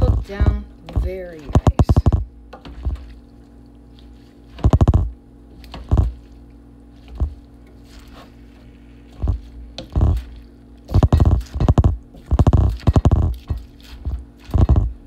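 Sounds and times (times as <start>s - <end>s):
wooden spoon stirring in metal pan: 5.5s - 15.0s.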